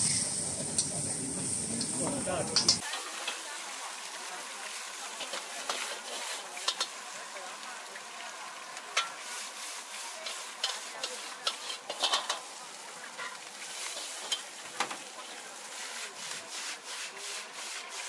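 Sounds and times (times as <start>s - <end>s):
frying hiss: 0.0s - 18.0s
metal spatula scraping wok: 2.6s - 7.2s, 8.8s - 18.0s.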